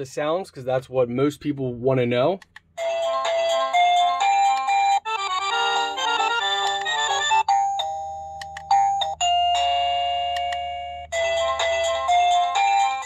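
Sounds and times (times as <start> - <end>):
electronic doorbell chime melodies: 2.8 - 13.0.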